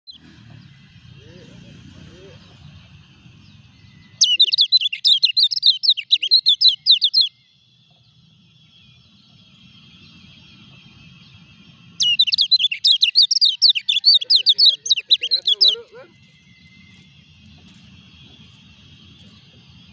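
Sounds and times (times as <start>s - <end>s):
small bird chattering song: 0.1s - 9.4s, 12.0s - 18.4s.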